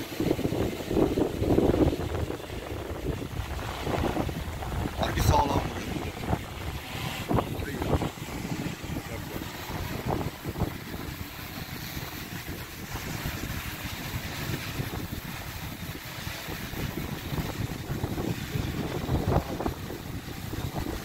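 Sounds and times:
drone propellers humming: 0:00.0 - 0:21.0
wind buffeting microphone: 0:00.0 - 0:21.0.

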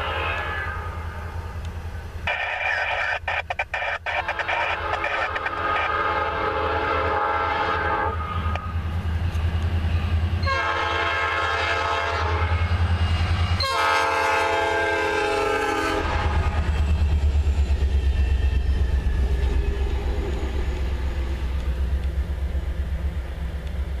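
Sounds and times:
diesel locomotives rumbling past: 0:00.0 - 0:24.0
locomotive air horn blasts: 0:02.3 - 0:08.6, 0:10.4 - 0:12.6, 0:13.6 - 0:16.4.

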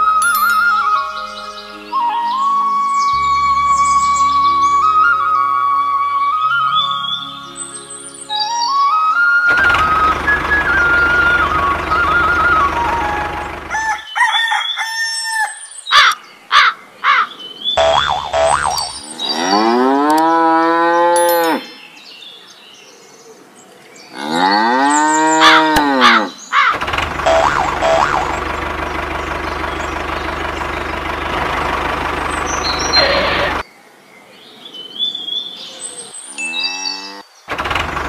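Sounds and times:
music: 0:00.0 - 0:13.5
engine running: 0:09.5 - 0:14.0, 0:17.8 - 0:20.2, 0:26.7 - 0:33.6, 0:37.5 - 0:38.0
cartoon boing effects: 0:17.8 - 0:19.5, 0:27.2 - 0:28.4
cow mooing: 0:17.8 - 0:21.7, 0:24.1 - 0:26.3, 0:36.4 - 0:37.2.

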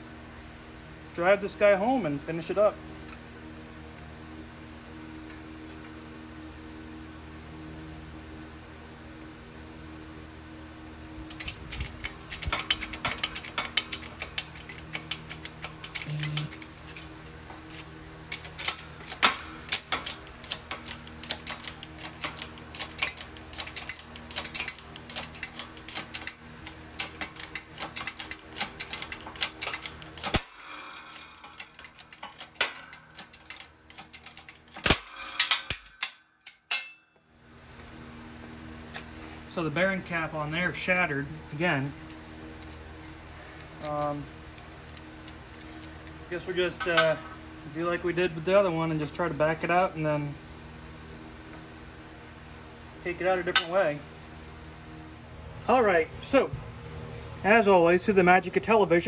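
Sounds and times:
shop press metallic clicks and cracks: 0:11.3 - 0:17.1, 0:18.3 - 0:37.1.

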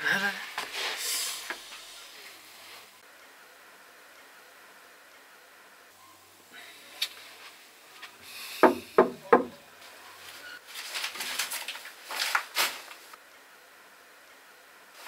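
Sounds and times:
rustling and shuffling: 0:00.4 - 0:01.0, 0:09.8 - 0:13.2
knocks on a door: 0:08.6 - 0:09.6.

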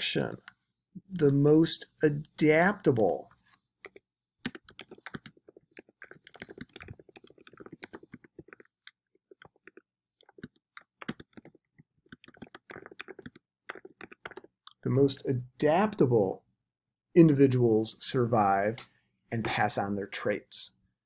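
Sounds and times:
typing on computer keyboard: 0:03.8 - 0:14.7.

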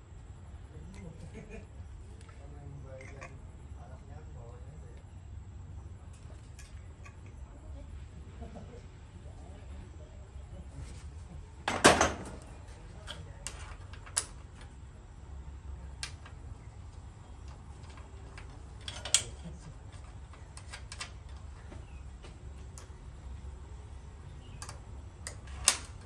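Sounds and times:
metal clicks of hand tools: 0:17.8 - 0:19.5.

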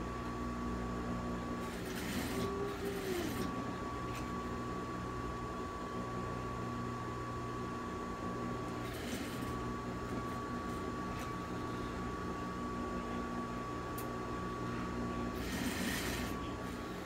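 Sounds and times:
sewing machine running: 0:01.6 - 0:04.3, 0:08.7 - 0:11.4, 0:15.3 - 0:17.0.

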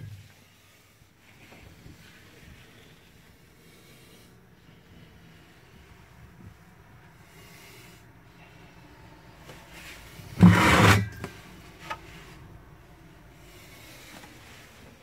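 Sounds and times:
low steady background: 0:00.0 - 0:15.0
loud scraping rub: 0:09.7 - 0:11.4.

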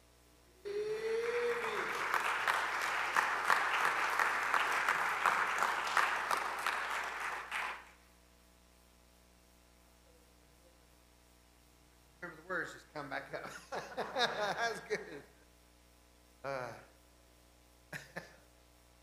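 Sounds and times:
congregation applauding: 0:00.7 - 0:08.0.

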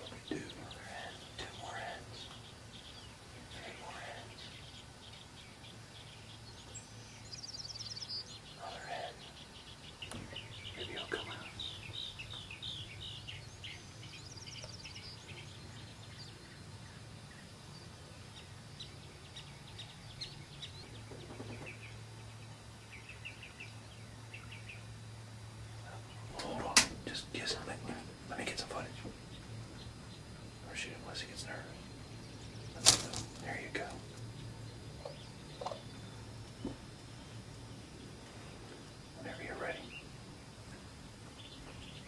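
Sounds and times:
faint low hum: 0:00.0 - 0:42.0
songbirds chirping: 0:00.0 - 0:42.0
rapid high bird trill: 0:39.1 - 0:40.2.

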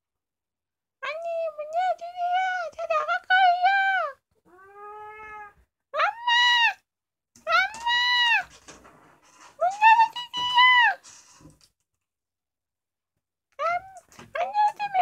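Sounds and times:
cat meowing: 0:04.5 - 0:05.6.

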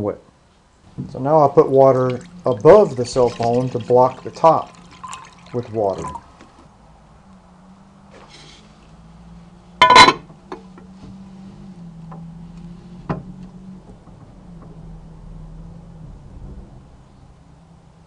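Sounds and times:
low hum: 0:00.7 - 0:17.9
water sloshing and dripping: 0:00.9 - 0:06.7
glass clink ringing: 0:04.8 - 0:06.2, 0:09.8 - 0:10.2.

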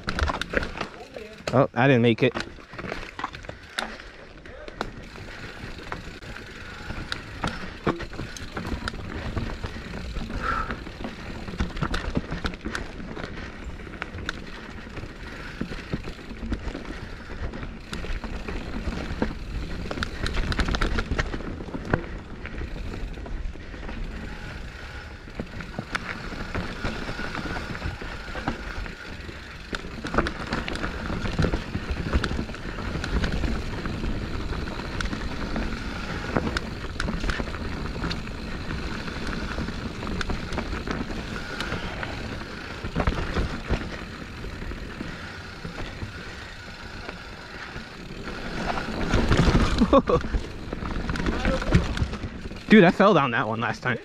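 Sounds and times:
mountain bike clattering: 0:00.0 - 0:54.0
tyres rolling noise: 0:00.0 - 0:54.0.

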